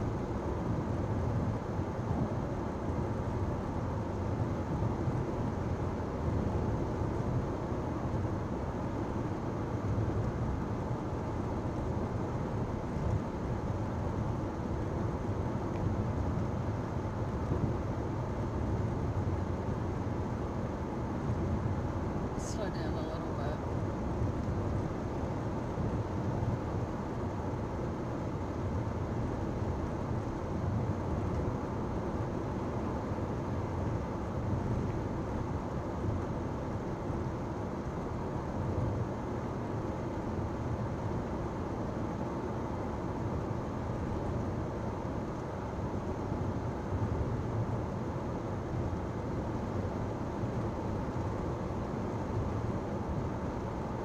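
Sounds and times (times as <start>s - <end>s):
car engine drone: 0.0s - 35.4s
road and tyre noise: 0.0s - 54.0s.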